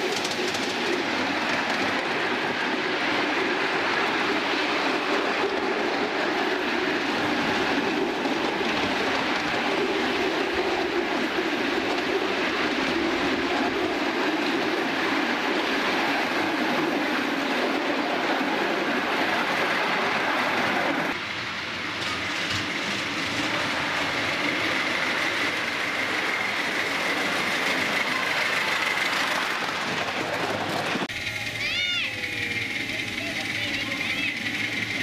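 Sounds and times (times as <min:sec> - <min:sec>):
miniature train wheels clattering: 0:00.0 - 0:02.6, 0:21.8 - 0:35.0.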